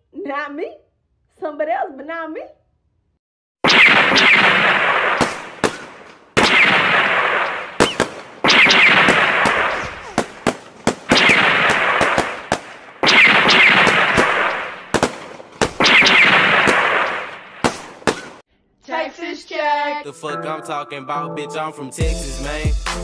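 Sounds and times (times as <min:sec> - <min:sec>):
gunfire bursts: 0:03.6 - 0:18.4.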